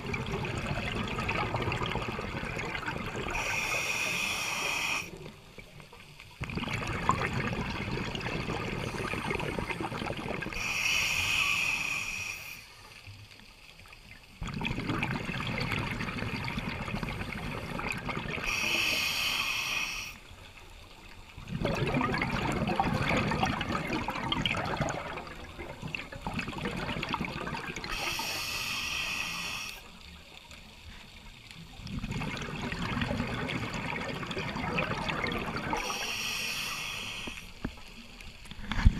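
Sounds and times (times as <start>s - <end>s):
gurgling exhaled bubbles: 0.0s - 5.7s, 6.4s - 10.8s, 14.4s - 18.9s, 21.3s - 28.3s, 31.8s - 37.3s
hissing regulator inhale: 3.3s - 5.3s, 10.6s - 13.0s, 18.4s - 20.3s, 27.9s - 30.0s, 35.7s - 37.8s.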